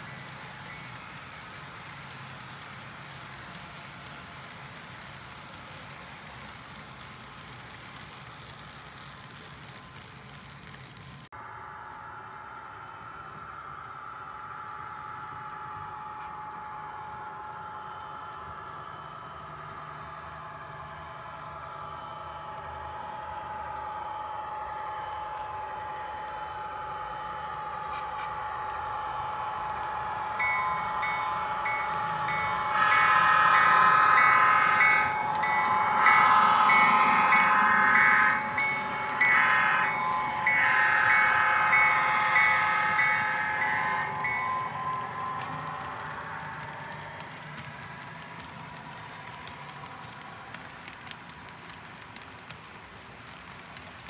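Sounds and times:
model diesel locomotive running: 0.0 - 54.0
locomotive bell ringing: 27.8 - 46.9.

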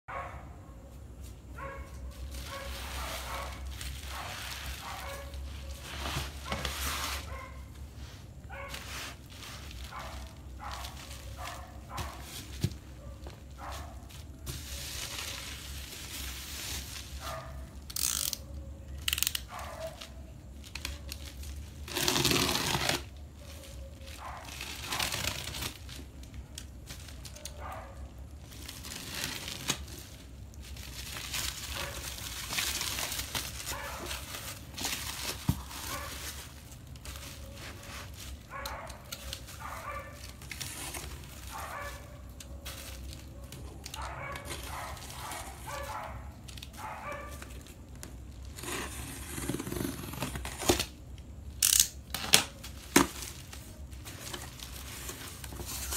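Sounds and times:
plastic crinkling and rustling: 1.1 - 55.9
loud tape rip: 21.8 - 23.1.

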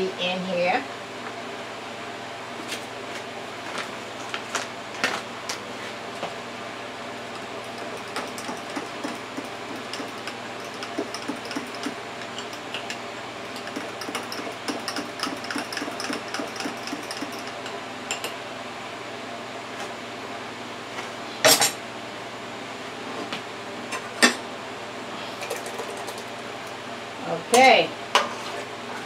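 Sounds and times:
steady hum: 0.0 - 29.0
metal spoon stirring in ceramic mug: 7.7 - 18.3
utensil clattering: 7.7 - 18.4.

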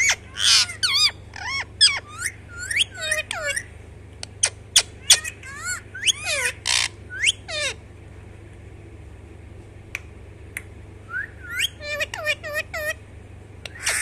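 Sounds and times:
parakeet sliding calls: 0.0 - 3.7, 4.4 - 7.8, 13.7 - 14.0.

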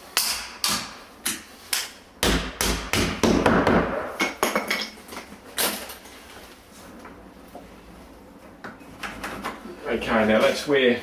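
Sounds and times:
sharp knocks on wooden door jamb: 2.2 - 4.3.

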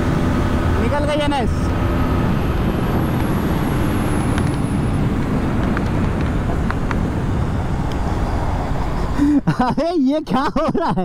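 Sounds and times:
wind noise on microphone: 1.7 - 9.2.

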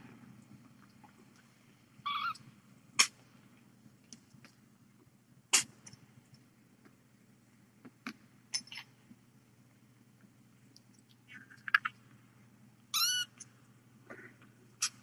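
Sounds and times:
kitten mewing: 2.0 - 2.4, 12.9 - 13.4.

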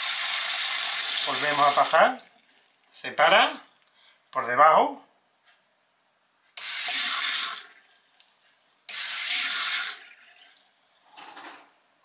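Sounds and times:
tap water running: 0.0 - 2.9, 6.6 - 11.1.

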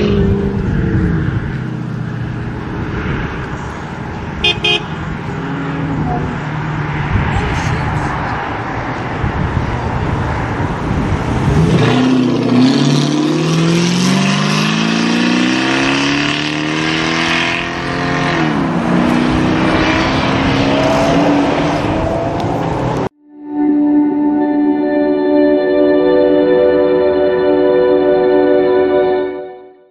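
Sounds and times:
car engine accelerating: 0.0 - 23.1.

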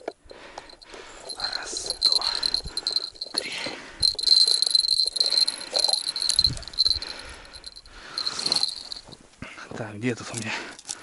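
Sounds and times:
clicks and rustles of handling: 8.2 - 11.0.

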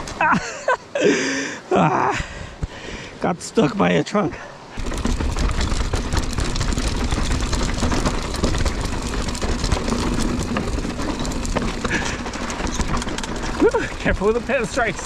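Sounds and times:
bike knocks and rattles: 4.7 - 15.0
tyres crunching over rocks: 4.7 - 15.0.

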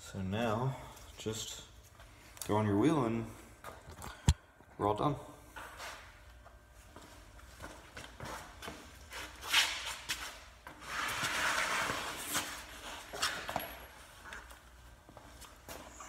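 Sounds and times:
tyre rubbing scrape: 10.8 - 13.2.

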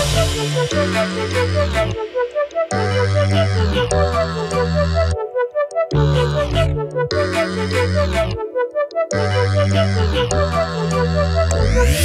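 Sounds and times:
deep sustained bass: 0.0 - 1.9.

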